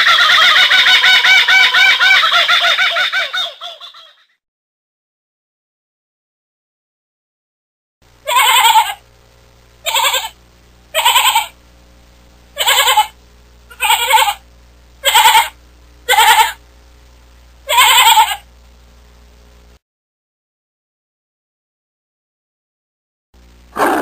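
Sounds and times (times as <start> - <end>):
faint low hum: 8.0 - 19.8, 23.4 - 24.0
lamb bleating: 8.3 - 9.0, 9.9 - 10.4, 11.0 - 11.6, 12.6 - 14.4, 15.0 - 16.6, 17.7 - 18.4.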